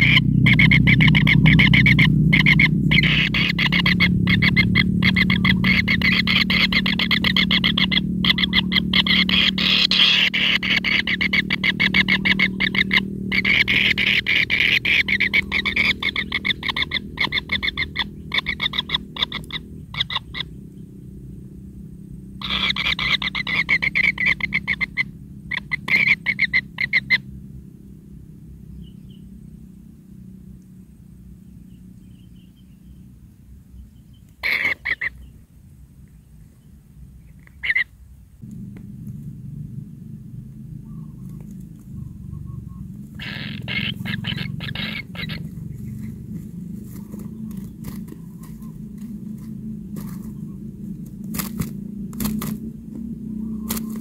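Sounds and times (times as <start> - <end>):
bird nestlings rattling calls: 0.0 - 20.8, 22.4 - 27.3, 34.4 - 35.3, 37.3 - 37.9, 40.6 - 52.7, 53.4 - 54.0.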